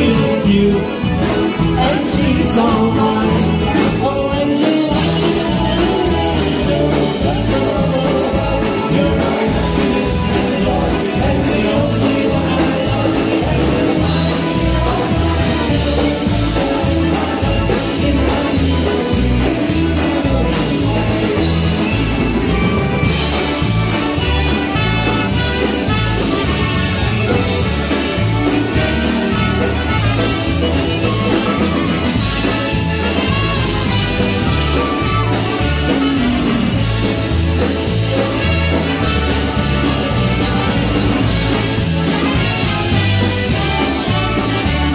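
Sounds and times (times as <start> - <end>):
polka band playing: 0.0 - 44.9.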